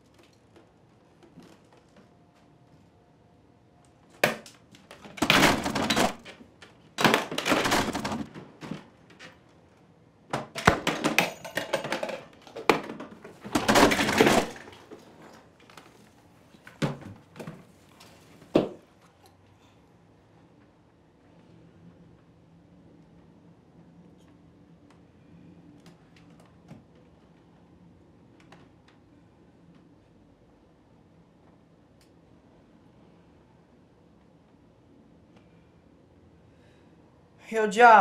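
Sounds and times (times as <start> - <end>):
objects knocking down on shelf: 4.2 - 6.4, 7.0 - 8.9, 10.3 - 15.5
hands rummaging through toys: 10.8 - 18.5.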